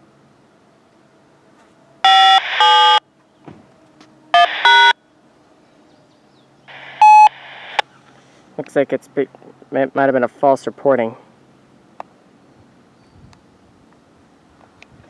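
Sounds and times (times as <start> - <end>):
electronic beep tones: 2.1 - 3.0, 4.4 - 5.0, 6.7 - 7.8.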